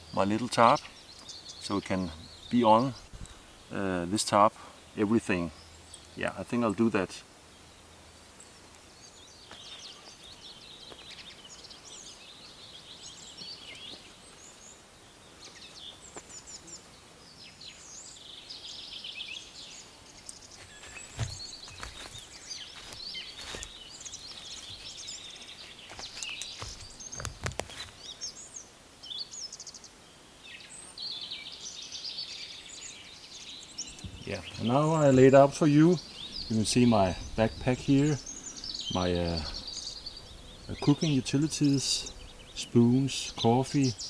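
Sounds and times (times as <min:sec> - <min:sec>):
songbirds chirping and trilling: 0:00.0 - 0:44.0
dull thumps: 0:20.6 - 0:22.2.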